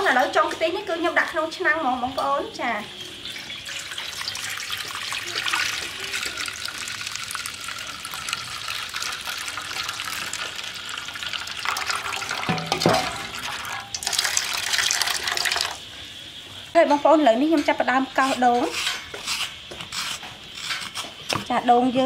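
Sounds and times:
coconut milk pouring and splashing: 0:03.3 - 0:15.9.

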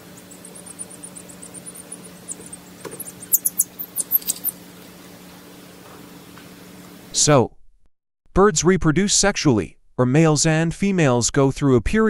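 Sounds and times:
chick peeping: 0:00.0 - 0:04.6
faint low hum: 0:00.0 - 0:05.4.

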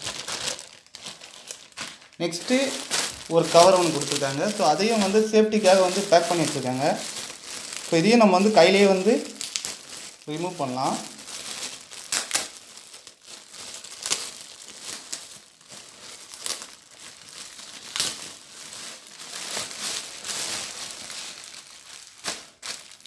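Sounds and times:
plastic bag crinkling: 0:00.0 - 0:23.0.

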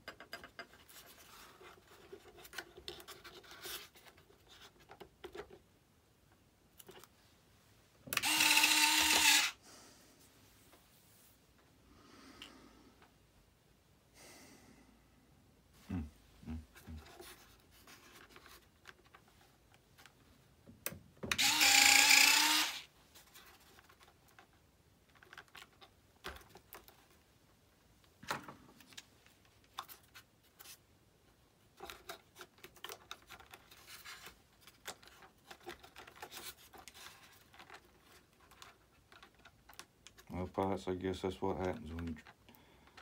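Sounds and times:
small electric motor whining: 0:08.2 - 0:09.6, 0:21.3 - 0:22.9.

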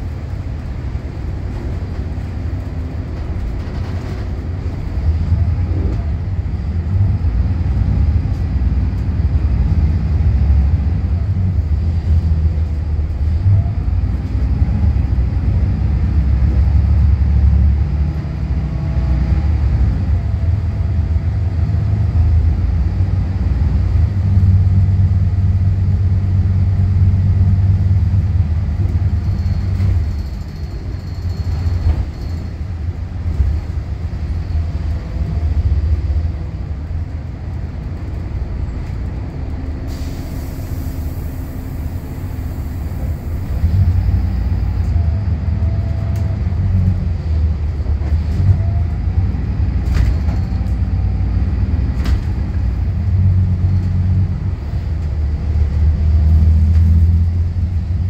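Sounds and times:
bus diesel engine droning: 0:00.0 - 0:58.0
air brake hiss: 0:39.9 - 0:43.7.

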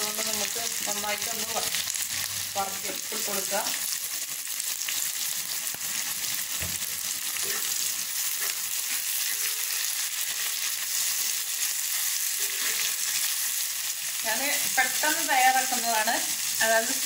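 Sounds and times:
onions sizzling in oil: 0:00.0 - 0:17.0
steel spoon scraping: 0:07.4 - 0:11.4, 0:12.2 - 0:13.2.

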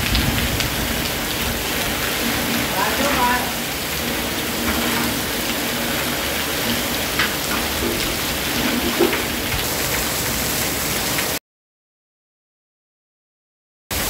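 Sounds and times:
runoff splashing off roof edge: 0:00.0 - 0:10.8
heavy rain pouring: 0:00.0 - 0:11.4.

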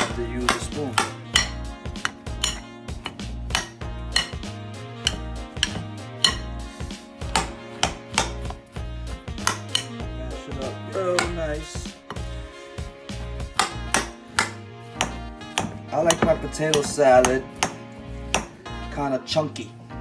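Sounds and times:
metal spoon scraping a bowl: 0:00.0 - 0:08.6, 0:09.3 - 0:10.0
background music with bass line: 0:00.0 - 0:20.0.

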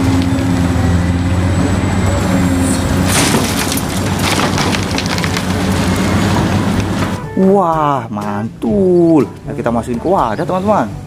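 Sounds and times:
diesel engine running: 0:00.0 - 0:07.4
earth and stones clattering: 0:03.0 - 0:07.0.

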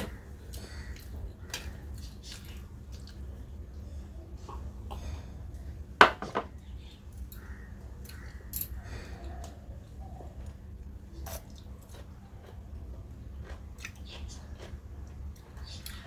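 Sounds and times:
wet chewing: 0:00.2 - 0:03.4, 0:11.2 - 0:16.0.

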